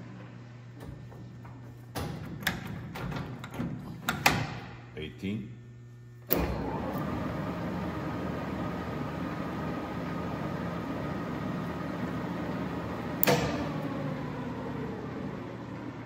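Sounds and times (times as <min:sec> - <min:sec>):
lathe running with whine: 0:06.3 - 0:16.0
sharp mechanical clunk: 0:13.2 - 0:13.8.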